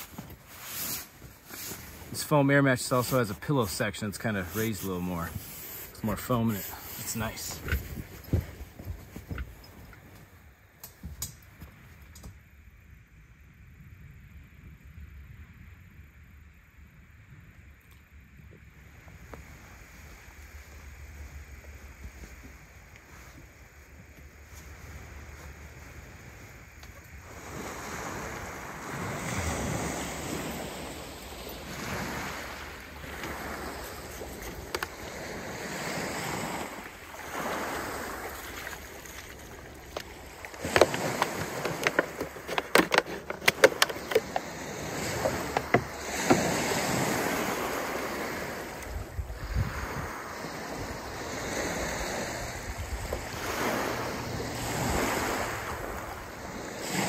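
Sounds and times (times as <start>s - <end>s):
waves washing onto pebble beach: 0.0s - 7.8s, 27.2s - 57.0s
sharp clicks and clatters: 40.0s - 44.4s.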